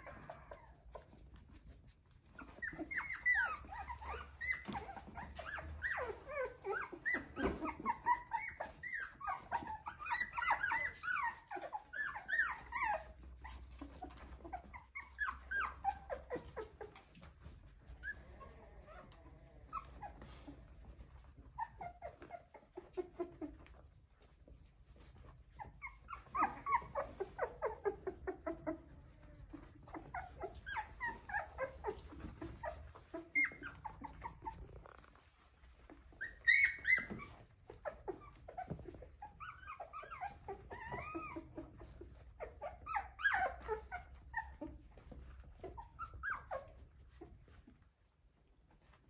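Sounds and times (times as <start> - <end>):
puppy yelping: 0.0 - 24.3, 25.0 - 47.9
puppies whimpering and yipping: 0.0 - 49.0.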